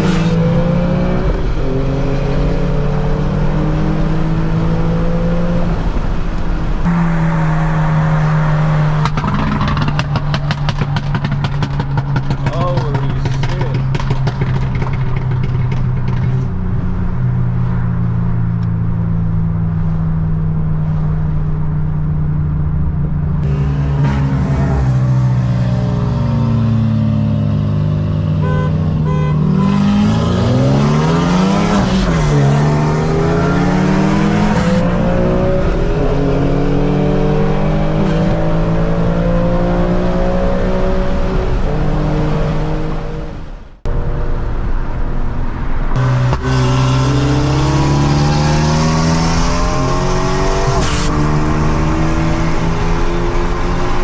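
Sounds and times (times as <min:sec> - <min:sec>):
car engine accelerating hard: 0:23.4 - 0:44.6, 0:45.9 - 0:54.0.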